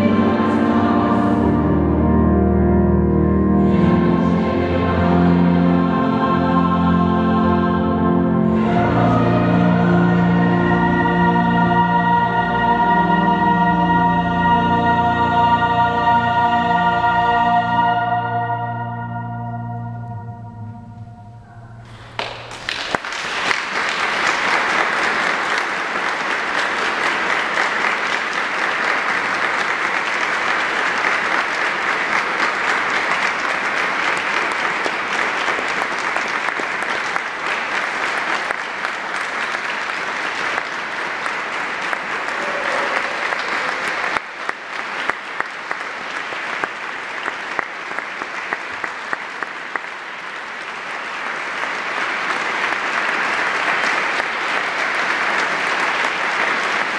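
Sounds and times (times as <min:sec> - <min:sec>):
audience applauding: 0:21.8 - 0:56.9.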